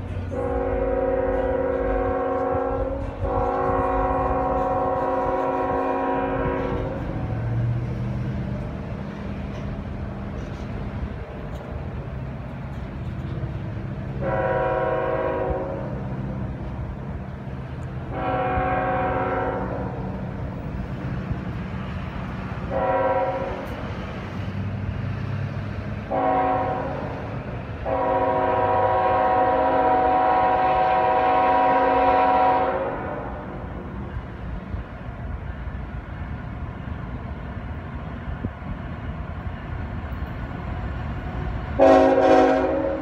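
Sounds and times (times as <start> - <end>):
diesel locomotive rumble: 0.0 - 43.0
locomotive air horn: 0.3 - 7.6, 14.1 - 16.2, 18.1 - 20.2, 22.6 - 23.8, 26.1 - 33.8, 41.8 - 43.0.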